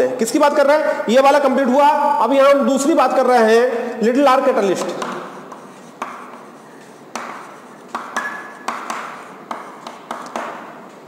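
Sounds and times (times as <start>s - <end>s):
chalk tapping and scraping on board: 4.6s - 11.0s.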